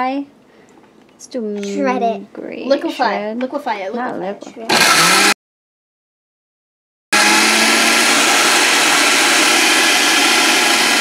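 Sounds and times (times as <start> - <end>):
blender grinding cookies: 4.7 - 5.4, 7.2 - 11.0.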